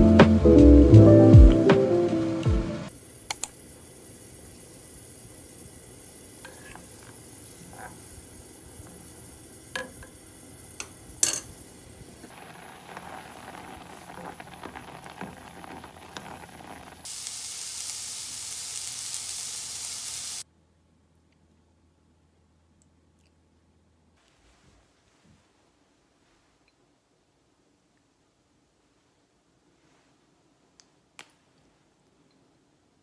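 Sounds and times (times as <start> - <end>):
loud steady hiss: 0.0 - 20.5
pot bubbling and crackling: 2.9 - 19.4
wooden spoon stirring rice in pot: 12.3 - 17.1.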